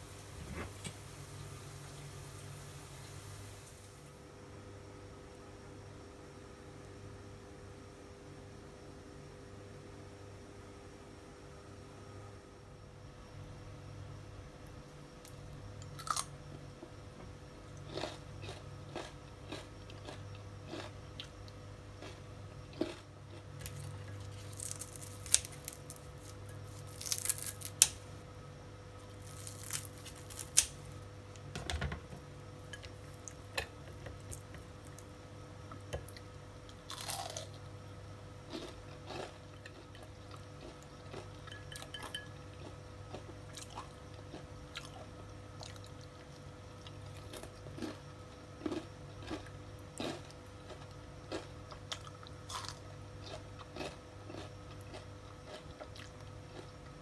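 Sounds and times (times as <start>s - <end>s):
steady low hum: 0.0s - 57.0s
fritters crunching: 16.0s - 16.2s, 17.8s - 20.9s, 22.0s - 28.1s, 29.0s - 31.0s, 36.8s - 37.5s, 48.6s - 56.7s.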